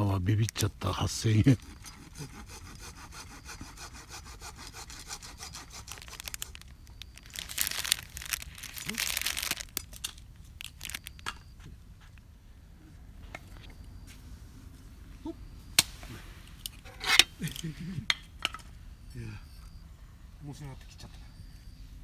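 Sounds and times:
plastic bag crinkling: 5.4s - 11.2s.

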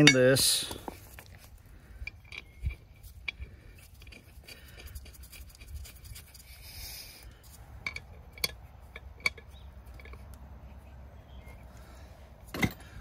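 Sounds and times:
metal parts clicking and knocking: 2.0s - 5.2s, 7.8s - 10.3s, 12.5s - 13.0s.

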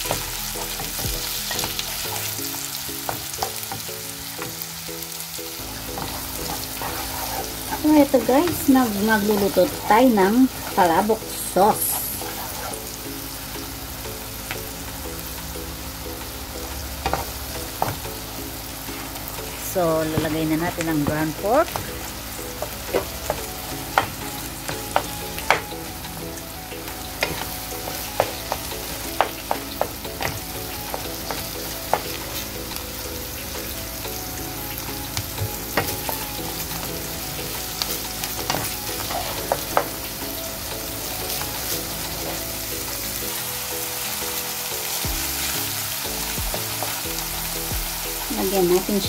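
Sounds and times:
meat sizzling in frying pan: 0.0s - 49.0s
wooden spatula knocking pan: 5.7s - 11.2s, 17.0s - 18.3s, 19.7s - 25.9s, 26.8s - 32.5s, 35.2s - 36.4s, 38.4s - 40.0s.

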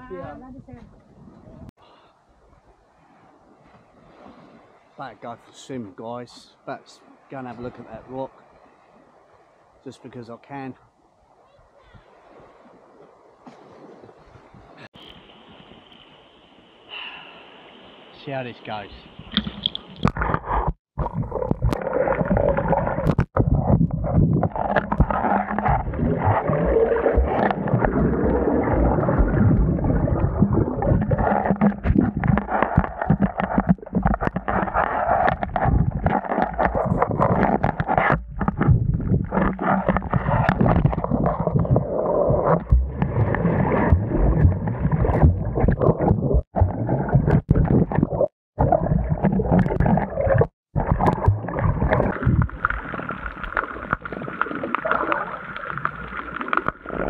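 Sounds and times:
underwater churning and gurgling: 19.3s - 57.0s.

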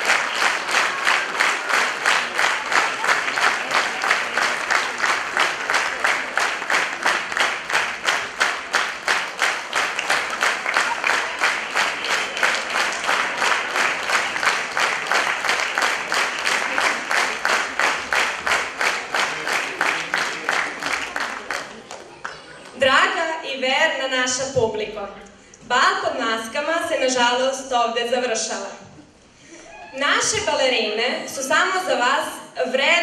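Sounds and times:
audience clapping in unison: 0.0s - 22.8s.

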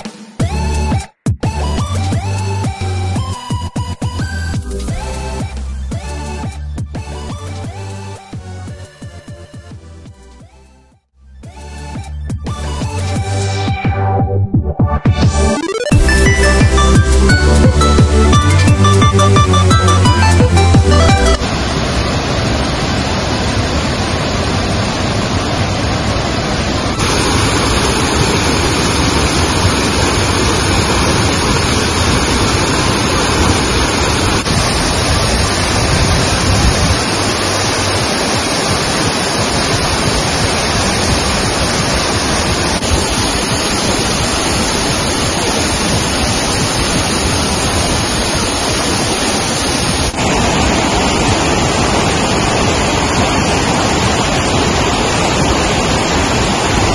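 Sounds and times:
waterfall rushing: 15.7s - 56.9s.

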